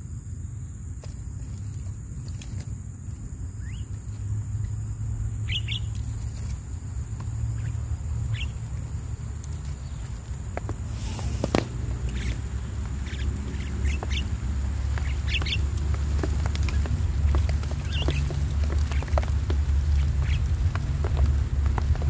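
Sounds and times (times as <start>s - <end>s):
steady low rumble: 0.0s - 22.0s
bird chirps and calls: 5.4s - 6.2s, 7.5s - 8.6s, 11.0s - 15.6s.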